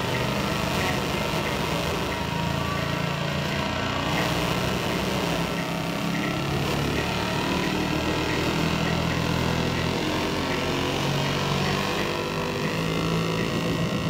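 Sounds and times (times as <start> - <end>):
electronic synthesizer drone: 0.0 - 14.0.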